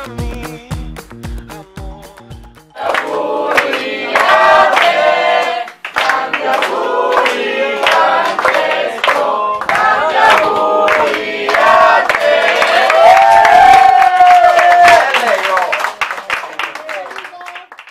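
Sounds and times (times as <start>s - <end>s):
group singing in chorus: 2.7s - 13.4s
hands clapping: 2.8s - 17.9s.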